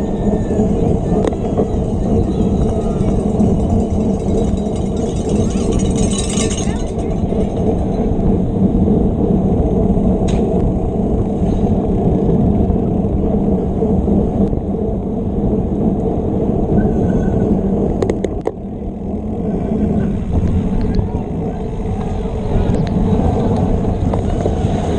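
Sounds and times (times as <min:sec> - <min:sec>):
wind and tyre rumble: 0:00.0 - 0:24.9
sharp rattles: 0:00.6 - 0:08.5.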